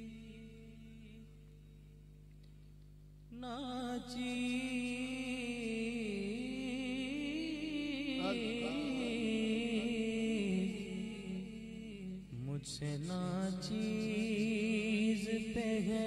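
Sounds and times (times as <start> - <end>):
man singing wordless melody: 0.0 - 1.8, 3.3 - 16.0.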